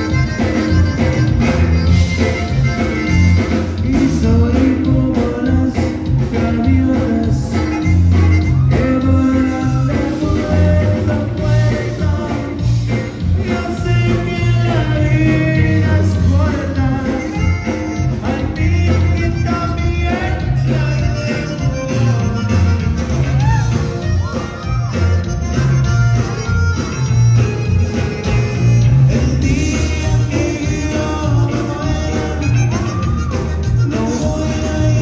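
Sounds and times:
bass guitar: 0.0 - 35.0
button accordion: 0.0 - 35.0
drums: 0.0 - 35.0
person singing: 2.2 - 24.4, 28.6 - 35.0.

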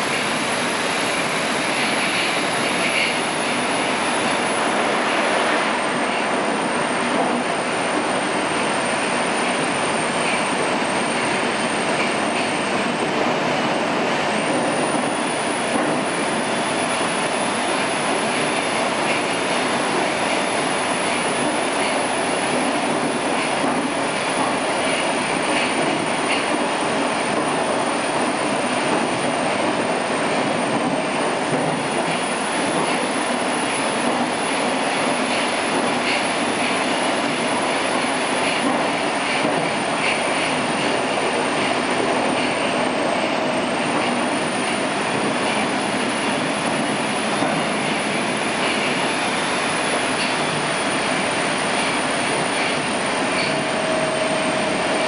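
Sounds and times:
train wheel and tunnel noise: 0.0 - 55.0
thin high whine: 48.1 - 55.0.

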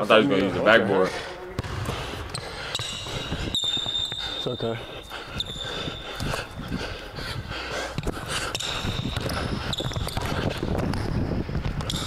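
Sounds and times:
sneaker squeak: 2.3 - 6.6, 8.5 - 10.5
basketball bouncing on wooden floor: 8.5 - 11.0.

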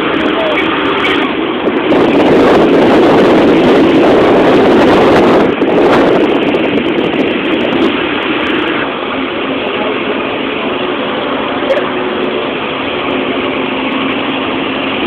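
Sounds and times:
wind and road noise inside vehicle: 0.0 - 15.0.

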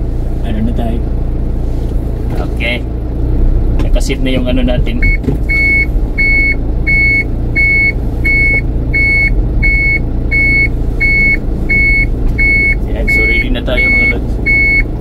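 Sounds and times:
truck engine idling: 0.0 - 15.0
reversing alarm beeping: 5.0 - 14.9.

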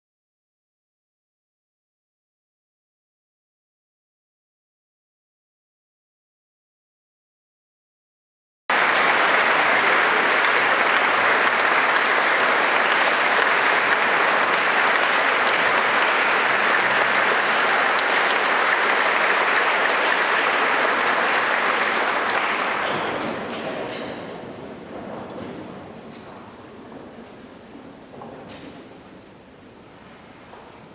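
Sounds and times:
audience applauding: 8.7 - 24.0.

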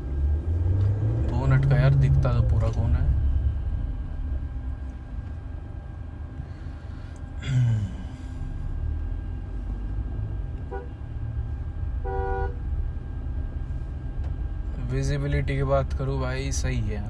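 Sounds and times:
car cabin rumble: 0.0 - 17.0
car horn: 10.6 - 11.0, 12.0 - 12.7.

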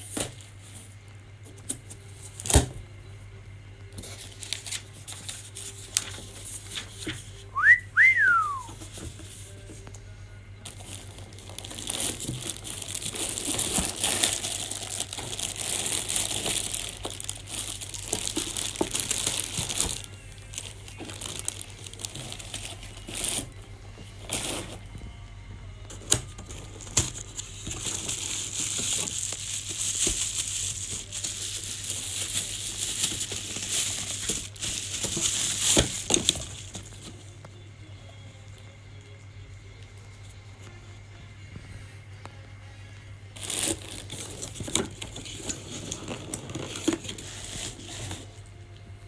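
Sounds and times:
plastic wrapping crinkling: 3.9 - 9.7, 10.6 - 25.2, 25.9 - 37.4, 43.4 - 48.4
cardboard packaging rustling: 4.0 - 9.8, 10.6 - 25.2, 25.9 - 37.4, 43.4 - 48.5.

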